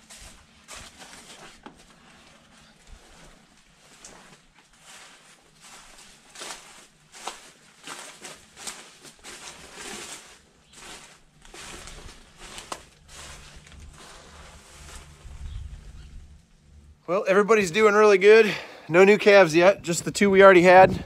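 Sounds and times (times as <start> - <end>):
footsteps crunching dry stalks: 0.0 - 16.8.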